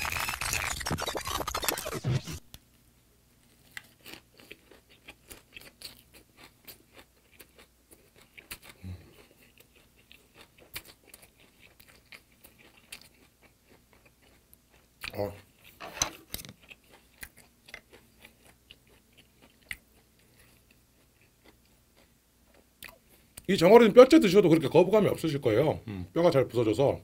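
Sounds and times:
close chewing with wet crunches: 3.7s - 15.8s, 16.6s - 23.4s.

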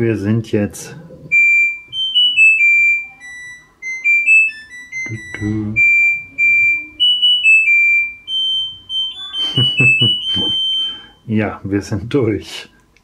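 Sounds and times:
washing machine beep melody: 1.3s - 11.4s.

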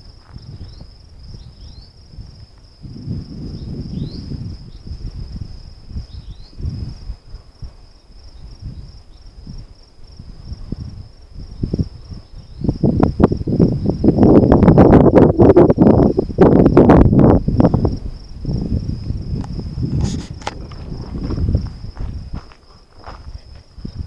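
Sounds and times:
crickets trilling: 0.0s - 24.0s
low muffled rumbles: 16.2s - 24.0s.

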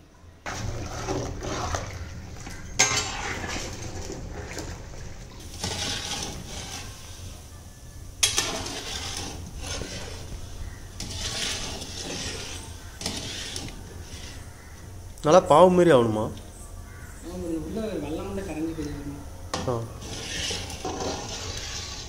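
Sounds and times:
metal ladle scraping iron pan: 0.5s - 7.4s, 8.2s - 14.9s, 19.5s - 22.0s.

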